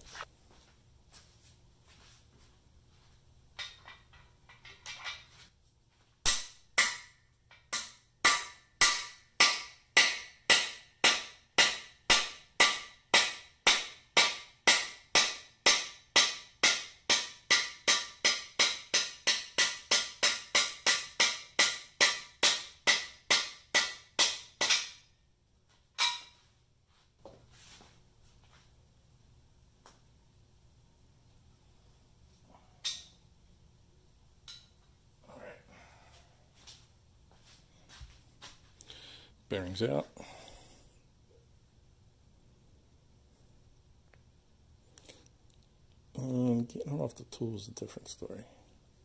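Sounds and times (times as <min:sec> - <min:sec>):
hammer striking metal tool: 0:06.2 - 0:25.1, 0:26.0 - 0:26.4.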